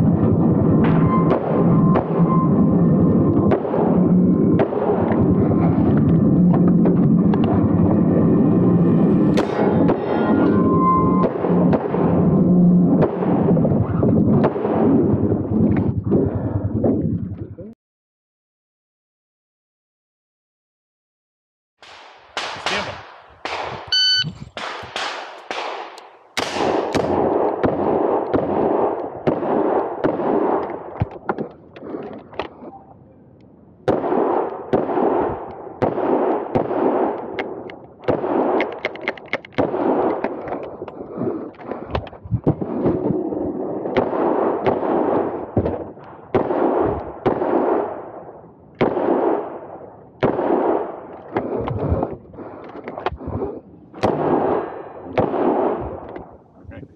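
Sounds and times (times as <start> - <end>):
short electronic beep: 23.9 - 24.3.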